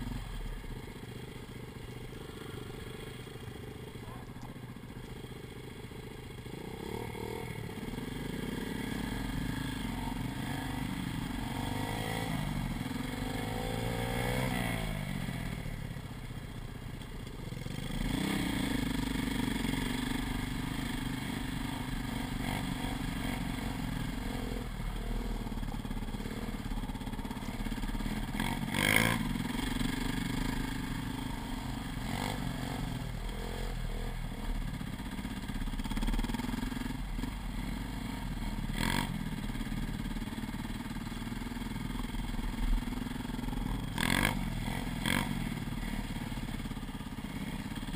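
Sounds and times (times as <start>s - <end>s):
dirt bike engine revving: 6.0s - 15.6s, 17.7s - 35.2s, 35.8s - 39.5s, 42.1s - 47.9s.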